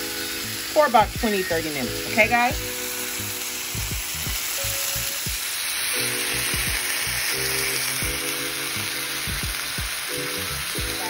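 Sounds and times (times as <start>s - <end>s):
background music: 0.0s - 11.0s
chicken sizzling in a frying pan: 0.0s - 11.0s.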